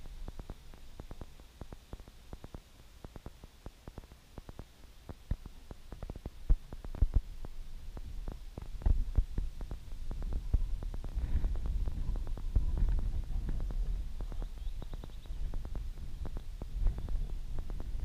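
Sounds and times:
wind buffeting microphone: 0:06.0 - 0:18.0.

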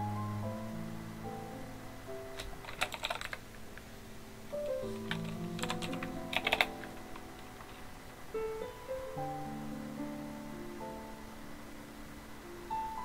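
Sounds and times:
soft instrumental music: 0:00.0 - 0:13.0
keyboard typing: 0:02.4 - 0:03.9, 0:04.7 - 0:07.9.

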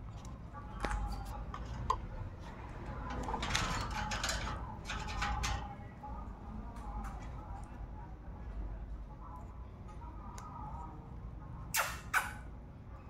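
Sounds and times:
parrot beak clicks: 0:11.7 - 0:12.4.

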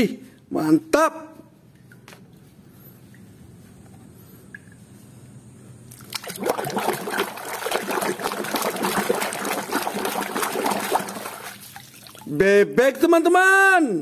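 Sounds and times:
water splashing in a basin: 0:05.9 - 0:12.4.

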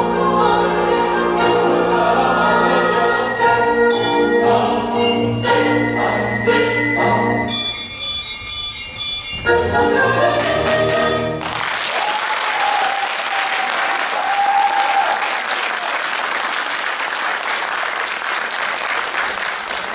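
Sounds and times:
audience applause: 0:11.4 - 0:19.9.

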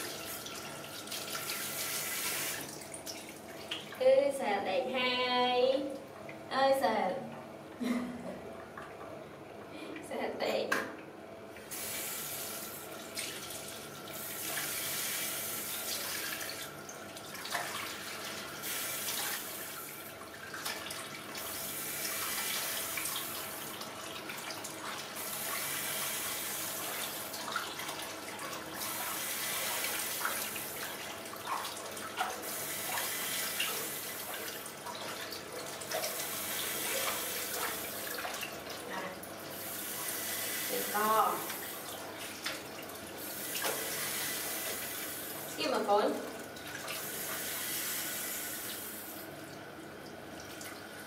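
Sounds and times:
tap water running into basin: 0:00.0 - 0:04.1, 0:10.8 - 0:51.0
small water splashes: 0:36.8 - 0:39.5.

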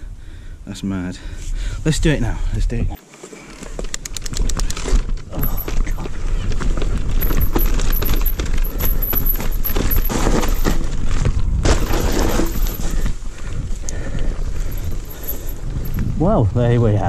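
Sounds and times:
bike tyres over dirt and roots: 0:03.0 - 0:17.0
wind noise: 0:03.8 - 0:17.0
chain and frame rattling: 0:04.2 - 0:06.1, 0:06.9 - 0:11.1, 0:11.7 - 0:13.2, 0:14.6 - 0:16.1.

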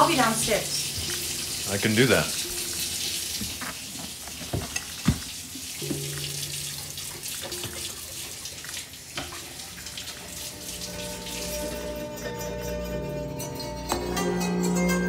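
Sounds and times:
tap water running into sink: 0:00.0 - 0:12.2
dishes clinking: 0:05.8 - 0:08.4.

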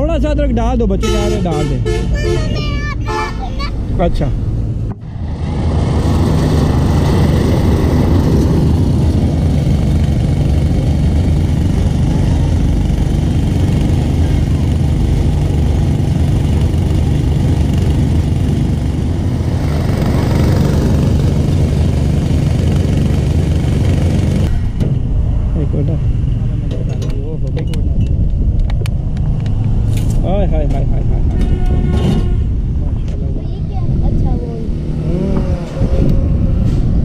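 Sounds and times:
small engine running: 0:05.2 - 0:24.5.

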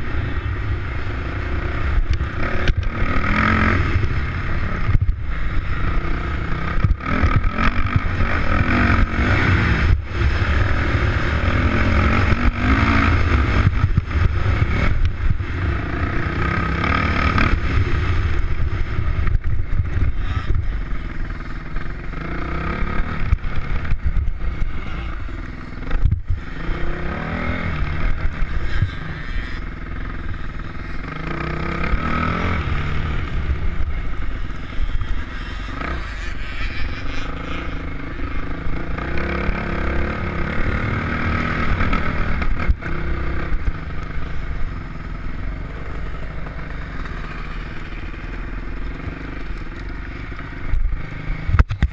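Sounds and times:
wind rumble on microphone: 0:00.0 - 0:21.2, 0:21.9 - 0:31.0, 0:50.2 - 0:51.9
off-road motorcycle engine: 0:00.0 - 0:51.9.

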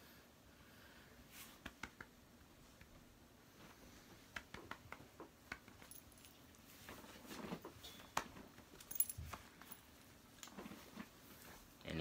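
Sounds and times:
rustling: 0:05.0 - 0:11.8
faint jingle: 0:08.8 - 0:09.8.

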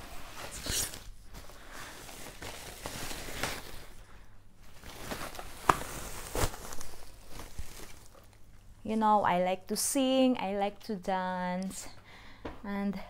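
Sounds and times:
plastic bag rustling: 0:00.0 - 0:08.5.

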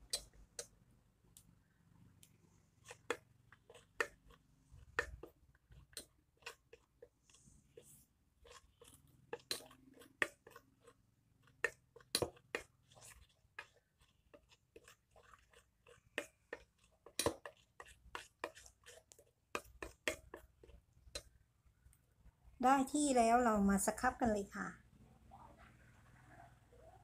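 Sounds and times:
wet squish of paste: 0:02.2 - 0:22.3
metal spoon scraping metal bowl: 0:02.8 - 0:21.4.

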